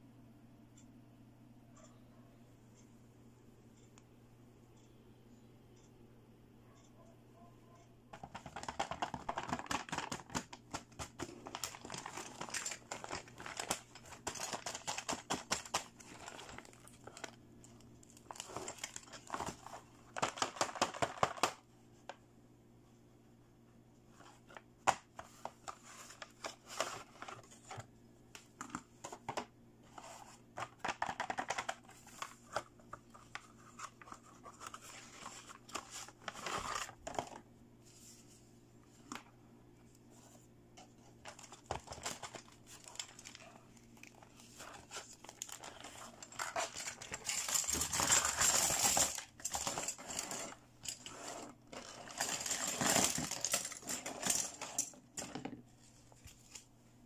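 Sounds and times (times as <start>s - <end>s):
plastic parts clicking and tapping: 8.1s - 22.2s, 24.5s - 37.4s, 40.8s - 55.6s
plastic bag rustling and tearing: 9.4s - 17.4s, 41.3s - 54.8s
plastic film crinkling and tearing: 9.4s - 17.4s.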